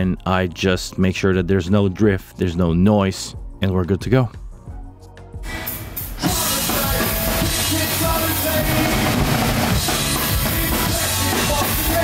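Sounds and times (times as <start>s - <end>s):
punk rock band playing live: 5.5s - 12.0s.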